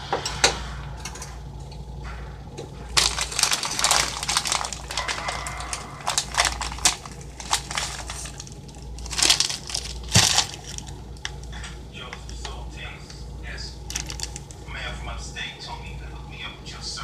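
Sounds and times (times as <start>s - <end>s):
plastic packaging crinkling: 2.9s - 12.8s, 13.8s - 14.7s.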